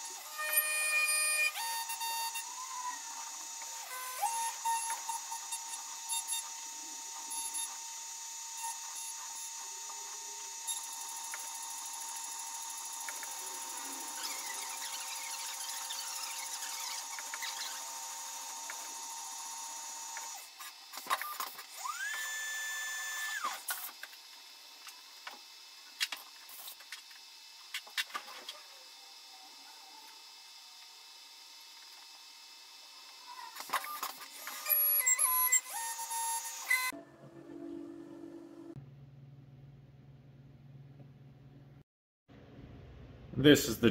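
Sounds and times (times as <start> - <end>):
milling machine whine: 0.0 - 38.8
spindle speeding up and down: 0.2 - 23.7.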